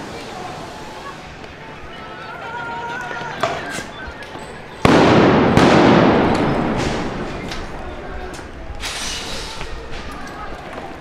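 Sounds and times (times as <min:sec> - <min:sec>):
loud echoing explosions: 0:04.8 - 0:08.2
brief hiss: 0:08.8 - 0:09.8.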